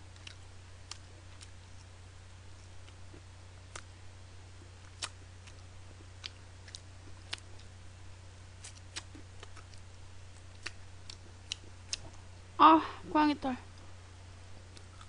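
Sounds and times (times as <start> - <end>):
low electrical hum: 0.0 - 15.0
mouth clicks and smacks chewing: 4.8 - 5.6, 6.2 - 7.7, 8.6 - 9.8, 10.4 - 12.2.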